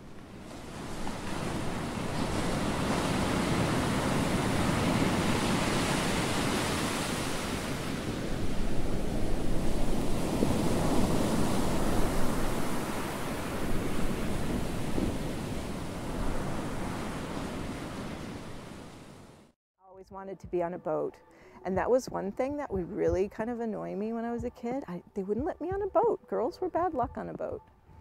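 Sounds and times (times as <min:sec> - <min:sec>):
ocean waves rushing: 0:00.0 - 0:19.6
wind: 0:00.0 - 0:19.6.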